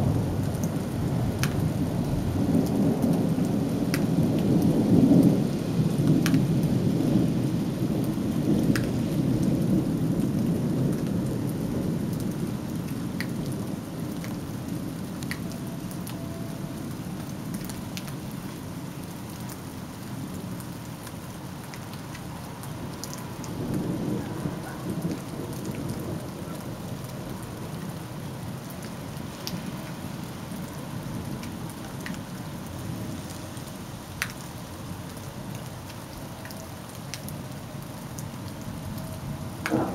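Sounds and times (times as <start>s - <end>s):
steady rain: 0.0s - 39.9s
thunder rolling: 39.6s - 39.9s.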